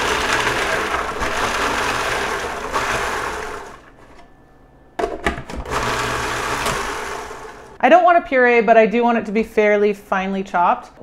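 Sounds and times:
food processor chopping onion: 0.0 - 3.9, 5.6 - 7.8.

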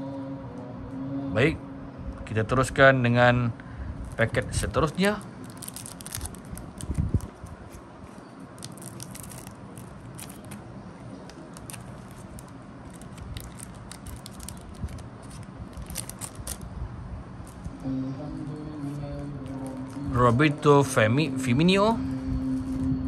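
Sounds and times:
card pack wrapper crinkling: 4.1 - 16.7.

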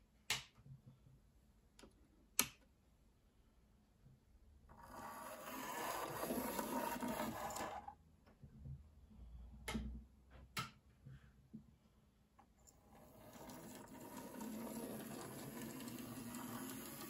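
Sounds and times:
small electric motor whirring: 4.8 - 7.9, 13.3 - 17.0.

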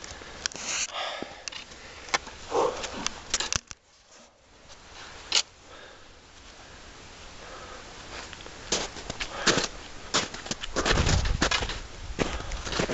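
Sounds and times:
footsteps crunching in snow: 8.1 - 12.9.

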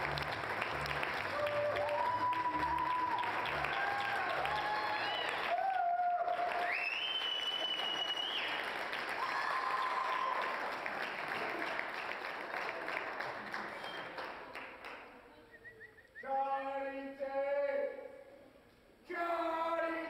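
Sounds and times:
crowd applause: 0.0 - 15.1.

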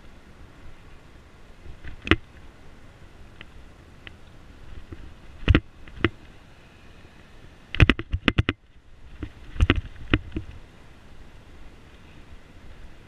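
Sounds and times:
bicycle rattling over bumps: 7.8 - 10.6.

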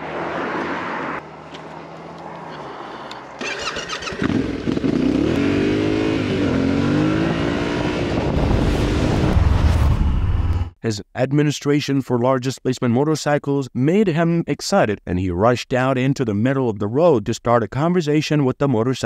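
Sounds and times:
motorcycle engine revving: 3.2 - 9.4.

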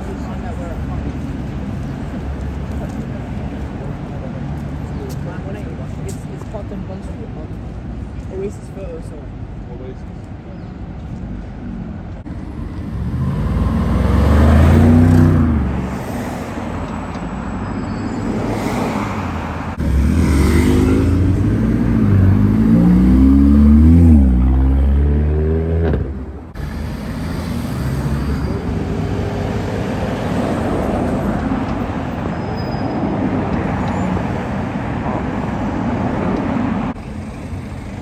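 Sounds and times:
steady traffic noise: 0.0 - 38.0
car engines accelerating past: 12.8 - 15.9, 18.3 - 30.8.

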